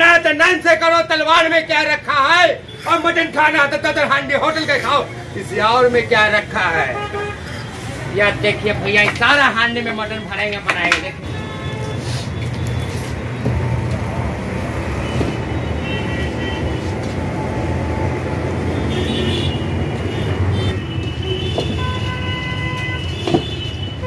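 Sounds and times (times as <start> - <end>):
road traffic rumble: 0.0 - 24.0
vehicle horns: 6.8 - 7.8, 11.2 - 13.1, 14.8 - 17.2, 18.6 - 24.0.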